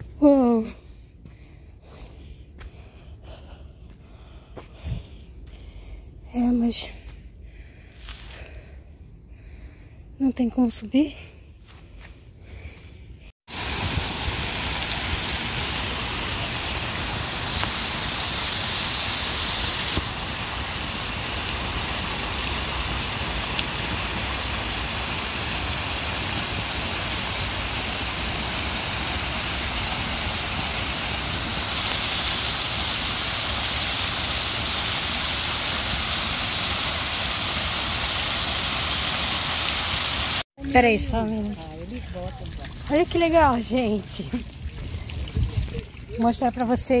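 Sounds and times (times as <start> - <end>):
water splashing over stones: 13.5 - 47.0.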